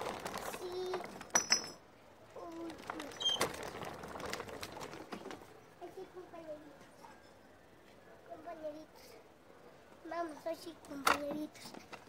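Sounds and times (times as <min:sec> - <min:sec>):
glass bottle clinking: 0:01.3 - 0:01.8.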